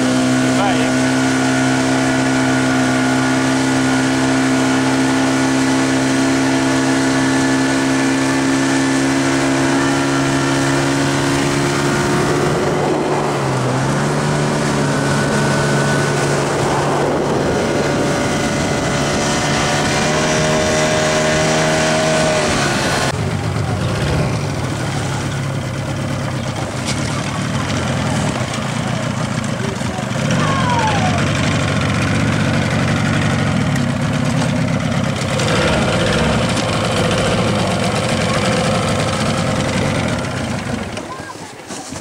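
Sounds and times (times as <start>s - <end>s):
motorboat engine running: 0.0s - 42.0s
water rushing past hull: 0.0s - 42.0s.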